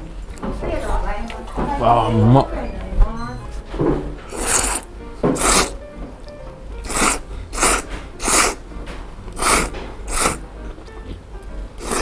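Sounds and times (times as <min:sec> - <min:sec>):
person slurping noodles: 0:04.3 - 0:05.8, 0:06.8 - 0:08.6, 0:09.4 - 0:10.4, 0:11.8 - 0:12.0.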